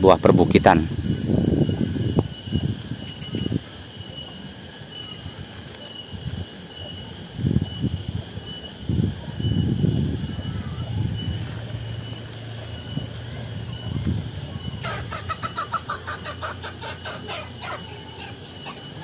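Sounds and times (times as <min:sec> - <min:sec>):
cicadas droning: 0:00.0 - 0:19.0
chicken clucking: 0:14.5 - 0:19.0.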